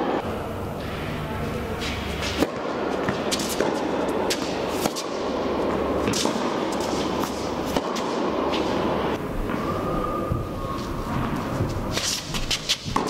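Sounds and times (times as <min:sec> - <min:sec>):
steady background noise: 0:00.0 - 0:13.0
tennis ball struck and bouncing: 0:02.3 - 0:05.3, 0:06.0 - 0:08.6, 0:11.2 - 0:13.0.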